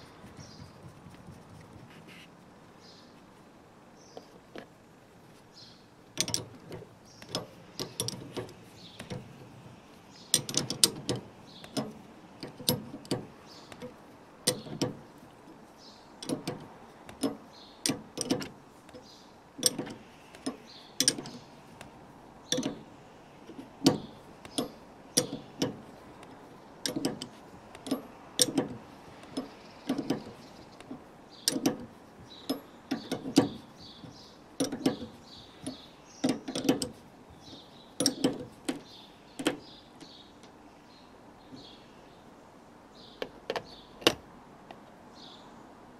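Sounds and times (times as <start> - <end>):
spanner clicking on metal nut: 6.2 - 9.3, 10.3 - 15.0, 16.2 - 21.4, 22.5 - 22.9, 23.5 - 40.1.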